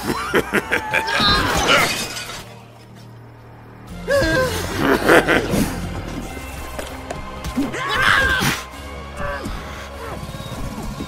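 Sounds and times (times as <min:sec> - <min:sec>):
glass shattering crash: 0:01.3 - 0:02.8
tense background music: 0:02.5 - 0:11.0.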